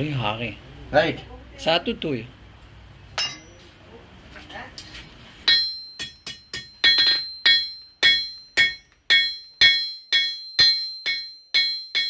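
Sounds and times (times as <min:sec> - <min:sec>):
hammer striking anvil: 0:03.2 - 0:03.6, 0:05.4 - 0:12.0.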